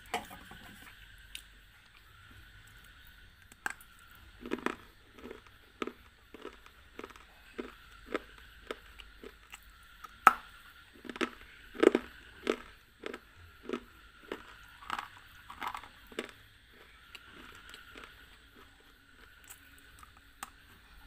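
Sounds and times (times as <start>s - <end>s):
teeth crunching hard block: 4.4s - 16.4s.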